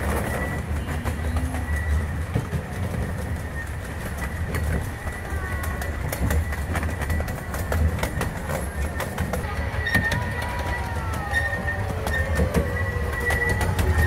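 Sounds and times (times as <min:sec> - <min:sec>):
train cars rumbling on track: 0:00.0 - 0:14.0
wheels clicking over rails: 0:00.0 - 0:14.0.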